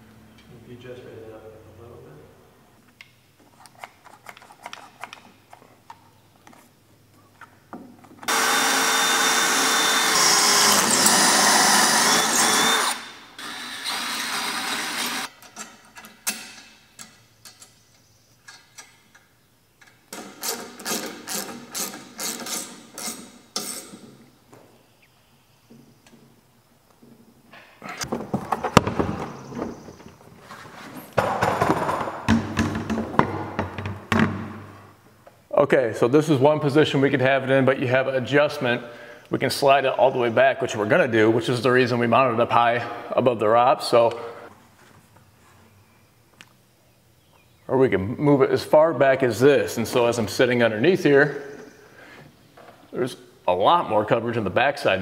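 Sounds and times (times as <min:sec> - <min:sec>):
power drill running: 0:08.3 - 0:15.3.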